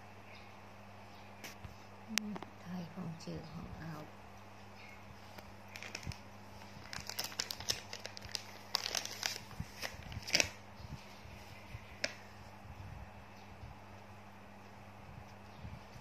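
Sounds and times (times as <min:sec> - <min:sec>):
diaper crinkling: 0:05.7 - 0:10.6.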